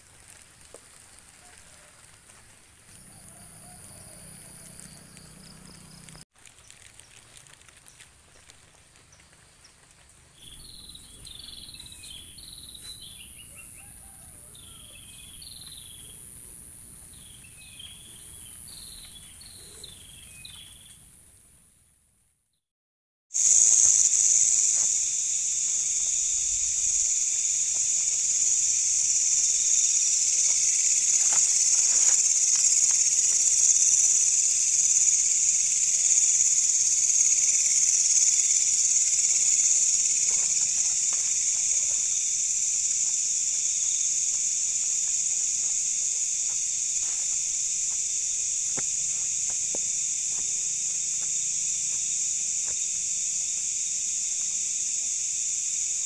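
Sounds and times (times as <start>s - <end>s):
insect chorus shrill drone: 2.9s - 6.2s, 10.4s - 16.5s, 23.4s - 56.0s.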